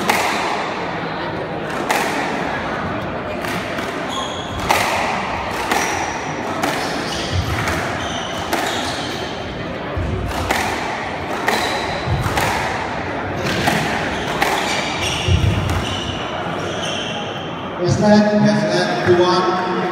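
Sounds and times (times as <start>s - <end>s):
squash ball hitting rackets: 0.0s - 16.4s
shoes squeaking on wooden floor: 6.9s - 9.3s, 13.4s - 17.2s.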